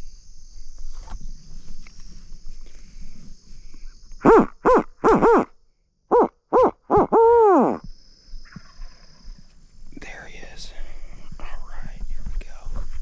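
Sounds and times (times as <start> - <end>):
owl hooter call hoots: 4.2 - 5.5, 6.1 - 7.8.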